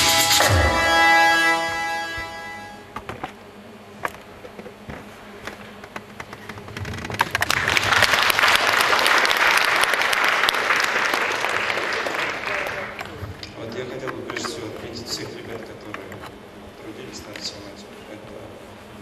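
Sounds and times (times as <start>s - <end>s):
audience applause: 7.2s - 13.0s.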